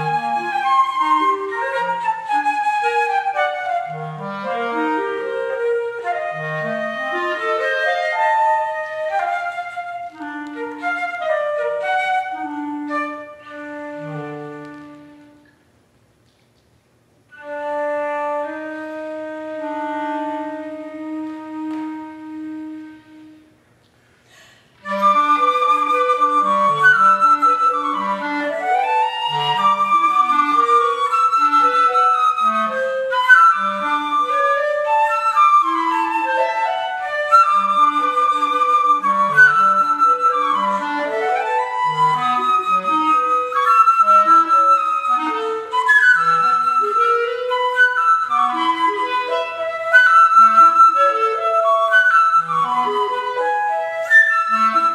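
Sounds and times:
clarinet: 0:00.0 - 0:15.6, 0:17.3 - 0:24.0, 0:24.7 - 0:54.9
flute: 0:00.0 - 0:15.6, 0:17.3 - 0:23.6, 0:24.7 - 0:54.9.

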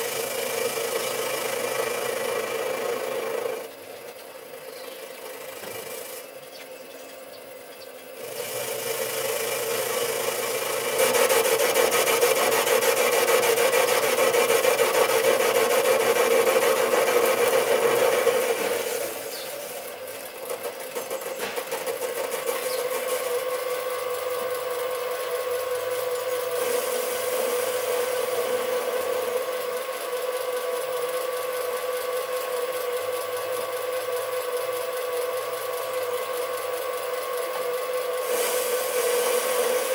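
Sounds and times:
lathe motor humming: 0:00.0 - 0:39.9
tool scraping metal: 0:38.2 - 0:39.9.

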